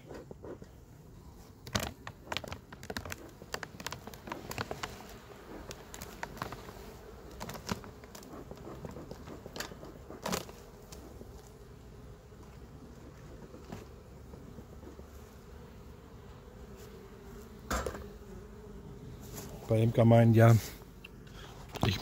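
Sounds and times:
honeybees buzzing: 0:00.0 - 0:22.0
hive tool clicks: 0:01.6 - 0:06.7
plastic foil crinkling: 0:01.6 - 0:10.5.

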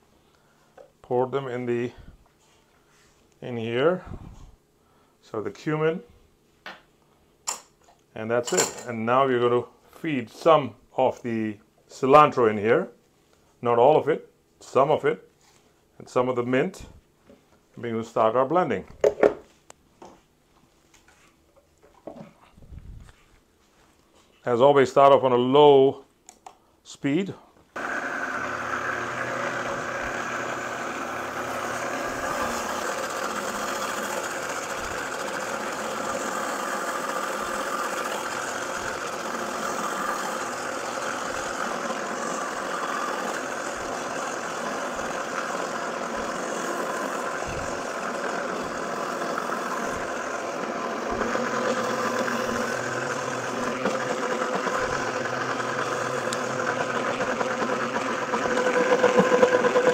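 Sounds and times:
blender motor running: 0:27.8 - 0:59.9.

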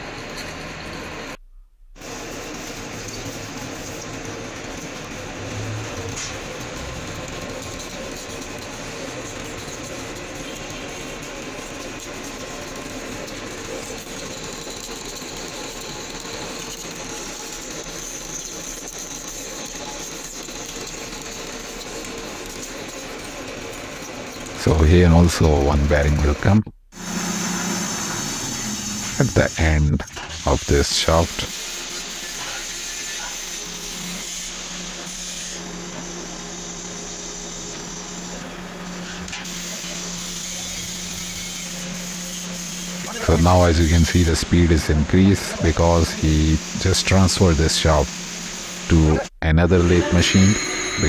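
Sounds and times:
lathe running: 0:02.0 - 0:51.0
steady high whine: 0:24.4 - 0:34.0, 0:42.9 - 0:51.0
even hiss: 0:27.0 - 0:33.3, 0:42.9 - 0:51.0.

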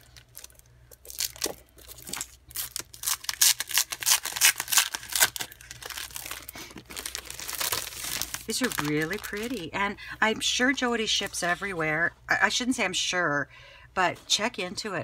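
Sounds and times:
plastic packaging crinkling: 0:00.0 - 0:09.8
paper sheets rustling: 0:05.9 - 0:09.7.

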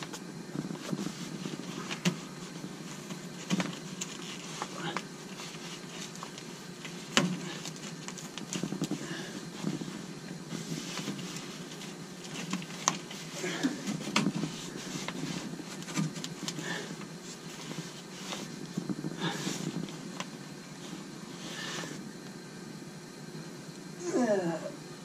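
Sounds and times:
filter clicks and rustles: 0:00.0 - 0:21.0
steady low hum: 0:00.0 - 0:25.0.

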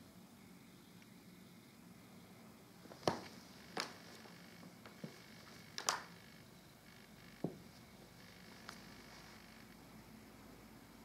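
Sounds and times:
faint room hiss: 0:00.0 - 0:11.0
sharp taps and clicks: 0:05.8 - 0:06.2.

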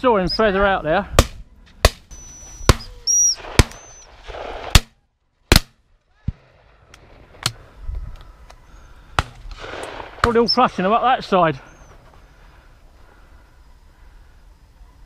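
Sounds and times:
shotgun shots: 0:01.2 - 0:06.4, 0:09.2 - 0:10.5.

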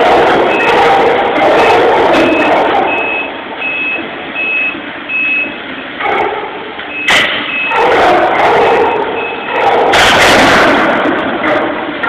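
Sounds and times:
heavy equipment grinding steel: 0:00.0 - 0:03.8
backup alarm beeping: 0:00.0 - 0:05.8, 0:06.8 - 0:07.9, 0:08.6 - 0:09.6
sharp bang: 0:07.0 - 0:11.7.

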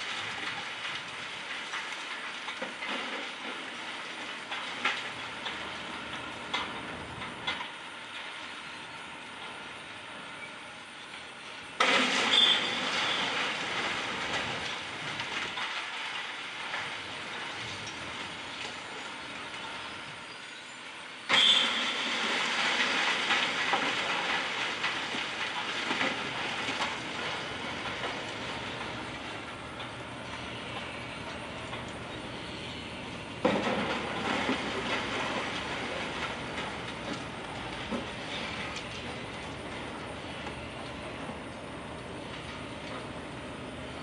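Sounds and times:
debris clattering and falling: 0:00.0 - 0:06.8, 0:11.8 - 0:19.8, 0:21.3 - 0:32.0, 0:33.4 - 0:40.5.

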